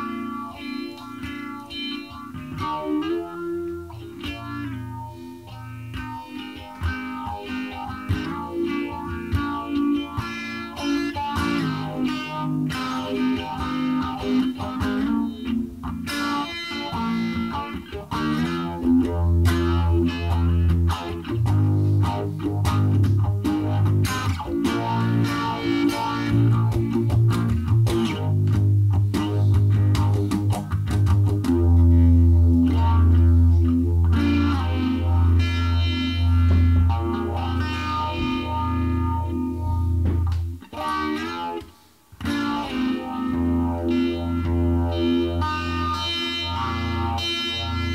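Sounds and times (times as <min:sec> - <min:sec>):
distorted electric guitar: 0:00.0 - 0:47.9
bass part: 0:18.8 - 0:40.7.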